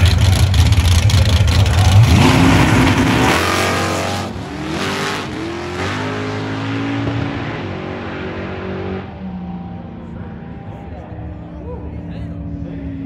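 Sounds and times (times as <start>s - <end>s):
deep engine rumble: 0.0s - 13.0s
drag race cars engines revving: 0.0s - 13.0s.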